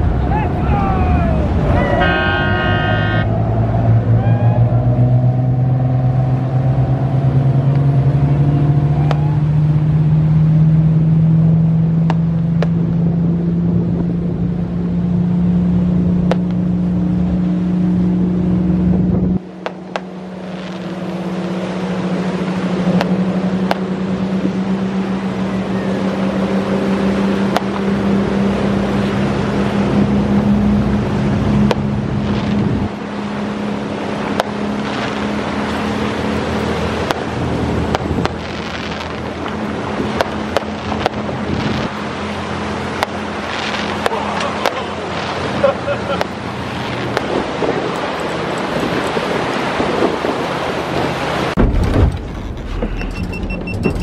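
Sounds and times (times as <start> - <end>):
boat engines accelerating: 0.0 - 54.0
hull knocking on waves: 22.8 - 24.6, 31.6 - 32.8, 34.2 - 35.4, 36.9 - 42.0, 42.9 - 54.0
water and spray hissing: 31.8 - 51.6.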